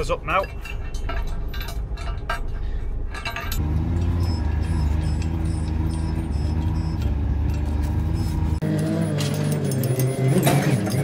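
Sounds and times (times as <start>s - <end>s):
metal bolts clinking: 0.0s - 11.0s
vehicle engine droning: 3.3s - 11.0s.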